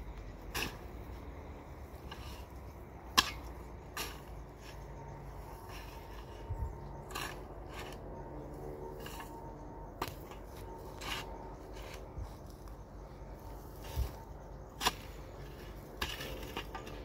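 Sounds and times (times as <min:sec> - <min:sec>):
hoe chopping into dry soil: 0:00.4 - 0:01.2, 0:01.8 - 0:04.8, 0:13.6 - 0:17.0.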